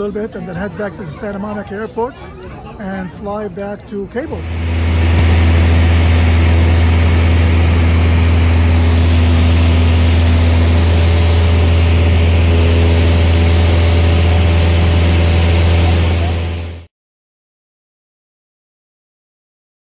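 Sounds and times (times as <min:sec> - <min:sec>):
plane engine and propeller drone: 0:03.8 - 0:16.9
air noise hiss: 0:04.3 - 0:16.8.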